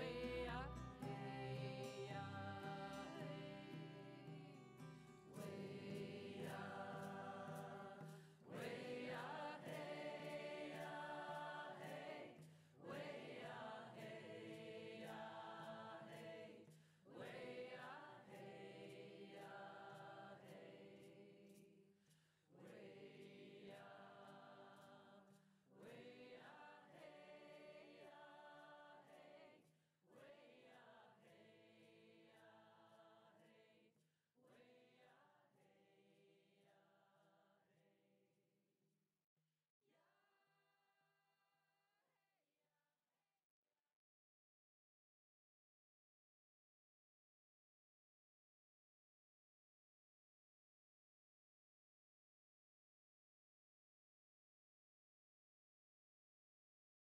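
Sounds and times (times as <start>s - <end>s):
soft choral singing: 0.0s - 21.9s, 22.5s - 37.8s.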